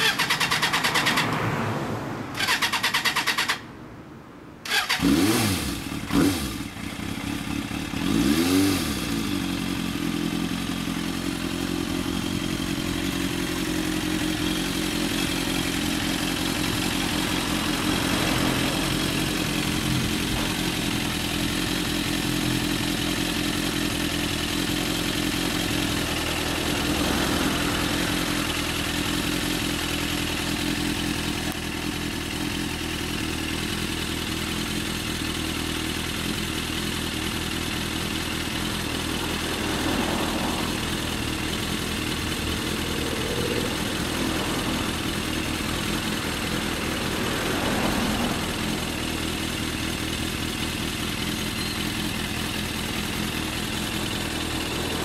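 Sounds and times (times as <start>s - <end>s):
motorcycle engine revving and idling: 0.0s - 1.7s, 2.3s - 3.6s, 4.6s - 55.0s.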